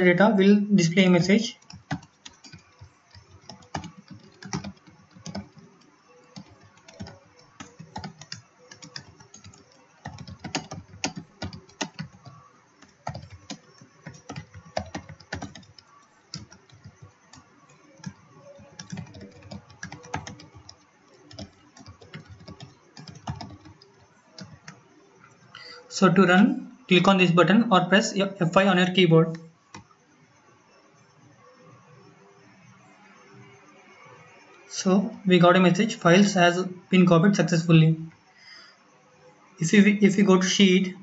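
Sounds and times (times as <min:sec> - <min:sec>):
typing on computer keyboard: 0:01.6 - 0:24.8.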